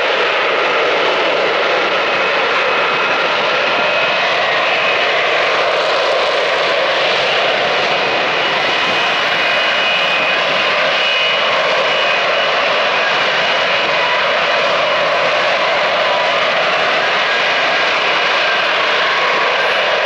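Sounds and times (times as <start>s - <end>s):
jet engine roaring: 0.0s - 20.0s.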